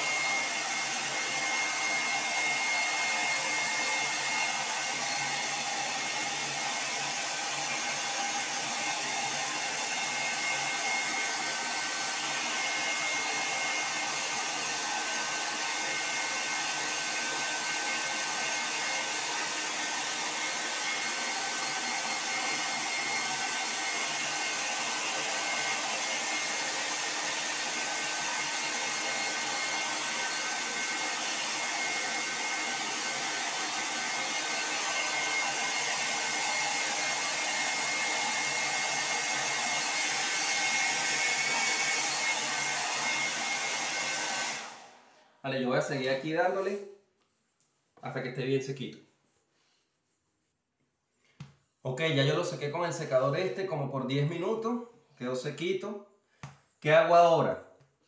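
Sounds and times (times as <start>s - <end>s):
hair dryer running: 0.0s - 45.2s.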